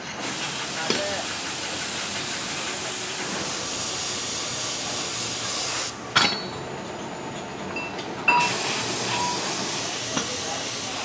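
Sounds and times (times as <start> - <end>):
spray gun hissing: 0.2 - 6.0, 8.4 - 11.0
metal clink: 6.2 - 6.6.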